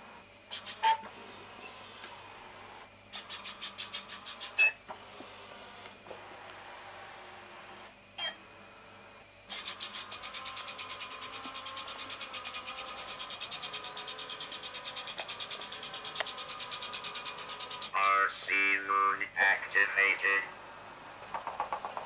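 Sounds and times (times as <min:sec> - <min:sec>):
robot gear motors whirring: 0:00.5 - 0:18.0.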